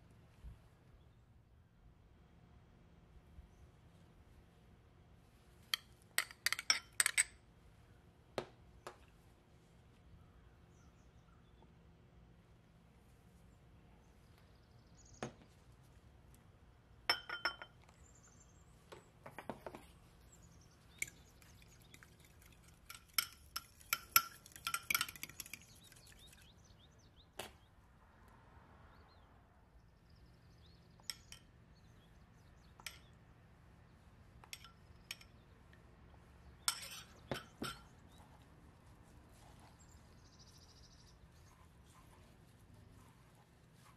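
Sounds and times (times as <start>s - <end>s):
spoon clinking against glass bowl: 5.8s - 7.3s, 17.1s - 17.8s, 20.9s - 26.5s, 36.7s - 38.1s
glass tapping on glass: 17.1s - 17.8s.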